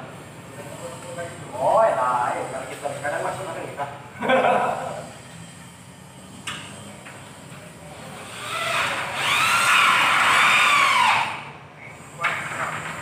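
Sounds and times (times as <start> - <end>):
electric power drill whining: 7.8 - 11.5.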